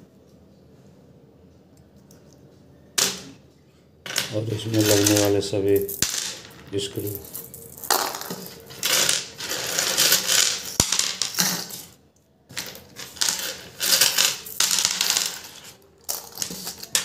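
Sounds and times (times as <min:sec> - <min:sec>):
small screws clinking into bowl: 0:04.2 - 0:17.0.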